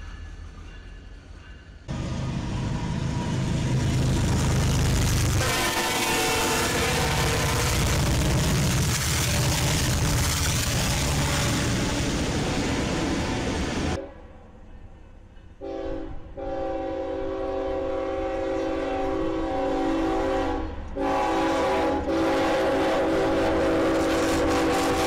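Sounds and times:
locomotives rumbling past: 1.9 - 14.0
train air horn blasts: 5.4 - 10.0, 10.7 - 14.3, 15.6 - 25.0.

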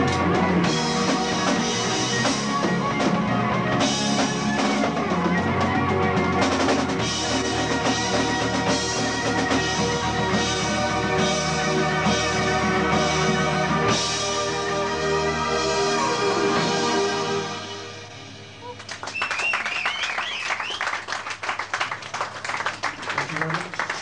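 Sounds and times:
drum kit with cymbals: 0.0 - 18.8
electric guitar: 0.0 - 19.1.

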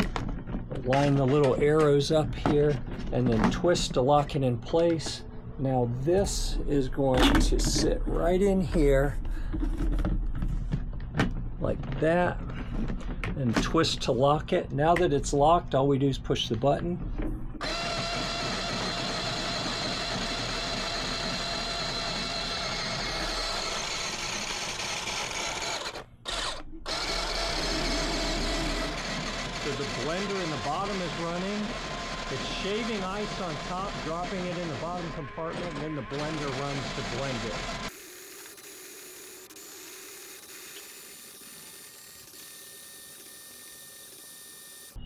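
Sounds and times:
drink machine motor whining: 17.6 - 45.0
portable blender whirring: 17.6 - 45.0.

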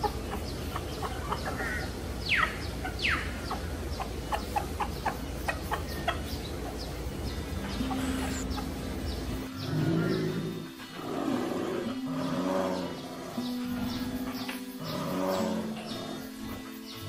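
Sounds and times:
steady low rumble: 0.0 - 10.7
chickens clucking: 0.0 - 17.0
chicken squawks: 7.6 - 8.9.

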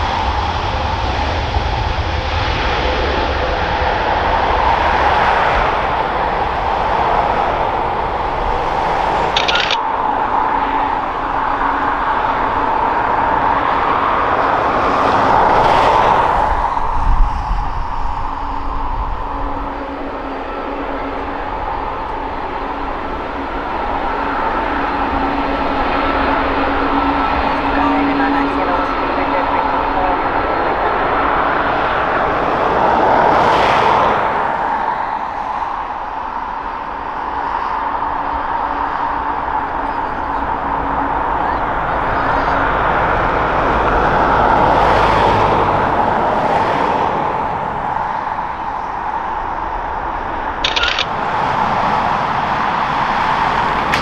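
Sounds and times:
jet engines whining: 47.4 - 54.0.

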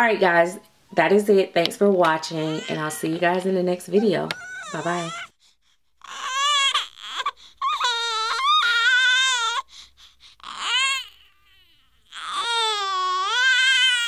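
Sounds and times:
newborn baby crying: 2.1 - 5.4, 6.0 - 14.0.

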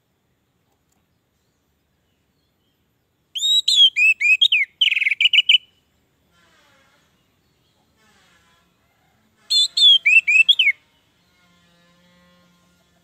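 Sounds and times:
thrush singing whistled notes: 3.3 - 5.9, 9.5 - 10.8.

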